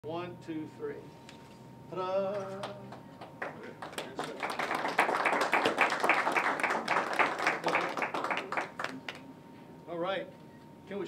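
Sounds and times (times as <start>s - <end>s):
small group applauding: 2.4s - 9.3s.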